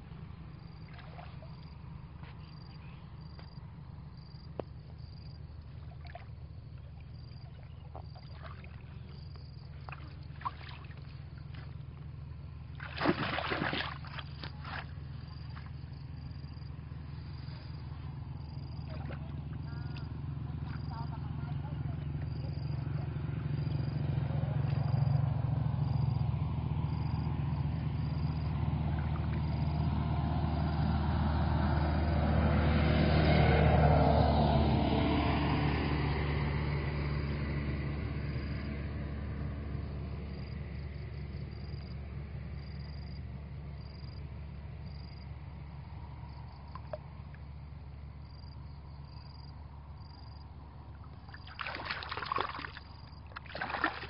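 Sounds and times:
short splashes: 0:00.6 - 0:02.5, 0:05.6 - 0:16.1, 0:18.6 - 0:21.2, 0:46.6 - 0:47.1, 0:50.9 - 0:54.0
vehicle engine passing by: 0:14.6 - 0:54.0.

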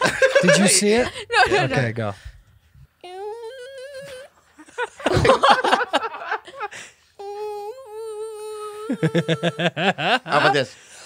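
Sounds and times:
man laughing: 0:00.0 - 0:01.9, 0:04.6 - 0:06.7, 0:08.9 - 0:10.6
man imitating animal whine: 0:03.0 - 0:04.3.

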